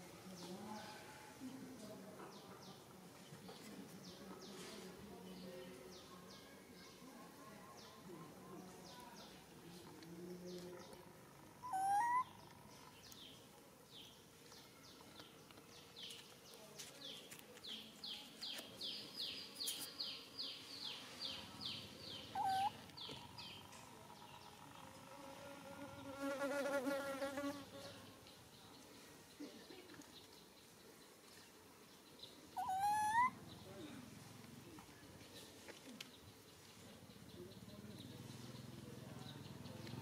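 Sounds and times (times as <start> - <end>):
low warbling animal call: 11.6 - 12.4, 22.4 - 23.4, 32.6 - 33.4.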